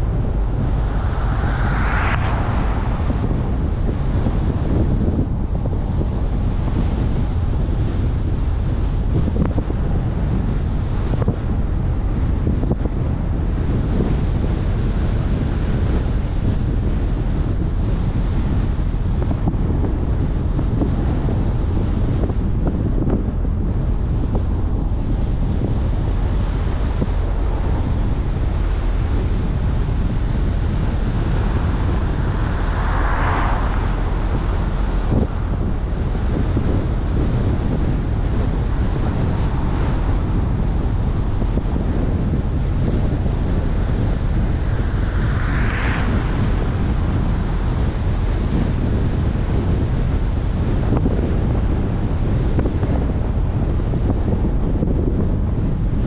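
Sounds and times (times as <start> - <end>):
rising and falling whooshes: 0.0 - 5.6, 31.0 - 37.1, 38.0 - 48.5
road and tyre rumble: 0.0 - 56.0
wind buffeting microphone: 0.0 - 56.0.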